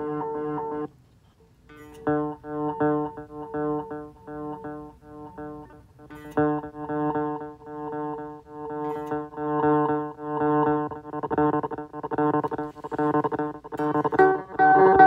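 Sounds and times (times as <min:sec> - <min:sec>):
guitar note echoing: 0:13.4 - 0:15.0.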